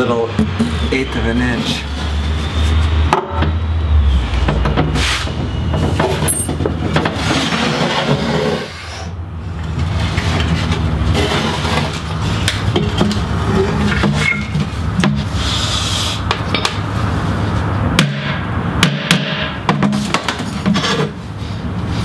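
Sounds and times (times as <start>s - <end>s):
wood rubbing and scraping: 4.4s - 9.0s.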